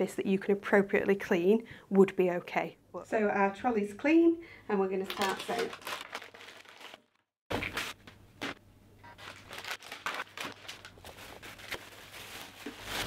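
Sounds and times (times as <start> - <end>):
packaging rustling and crinkling: 5.0 - 13.0.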